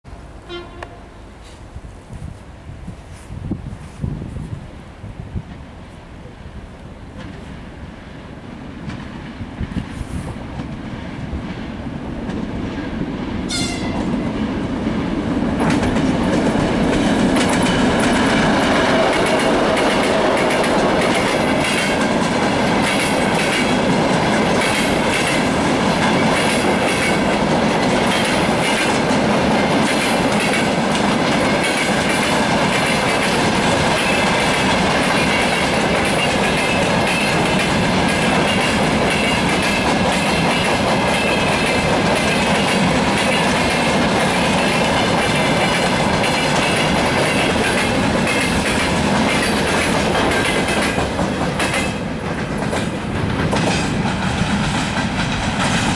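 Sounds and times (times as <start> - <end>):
diesel locomotive engine rumble: 0.2 - 55.9
train horn blast: 0.4 - 1.6, 13.5 - 14.2
train wheels clacking over rail joints: 8.8 - 55.9.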